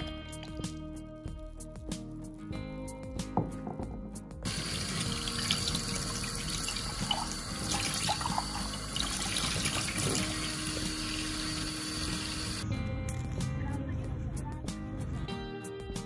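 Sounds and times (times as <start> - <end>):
tap water splashing into sink: 4.5 - 11.3.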